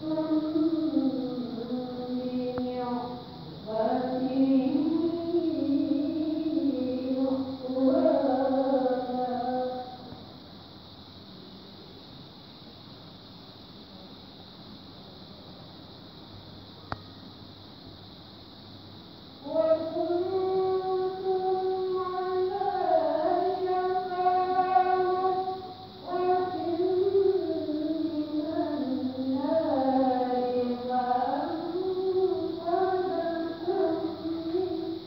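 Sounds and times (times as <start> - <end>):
woman reciting melodically: 0.0 - 10.1, 18.7 - 35.0.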